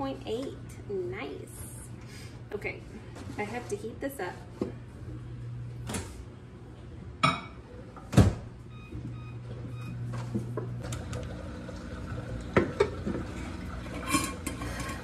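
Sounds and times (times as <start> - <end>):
microwave humming: 4.6 - 15.0.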